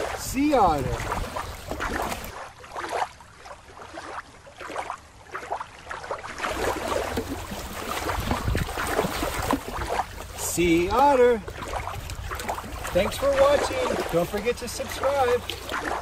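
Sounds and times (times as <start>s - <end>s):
water lapping on rocky shore: 0.0s - 16.0s.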